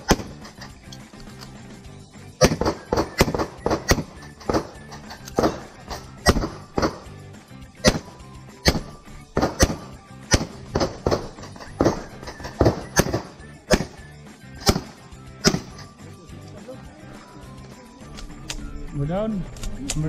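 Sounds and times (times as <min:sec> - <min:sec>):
pistol shots: 0:00.0 - 0:00.8, 0:02.4 - 0:07.2, 0:07.8 - 0:15.9.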